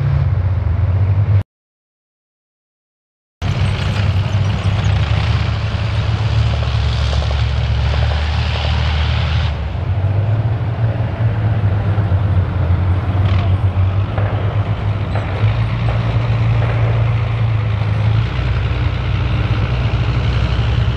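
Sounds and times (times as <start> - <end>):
heavy engine droning: 0.0 - 1.4, 3.4 - 20.9.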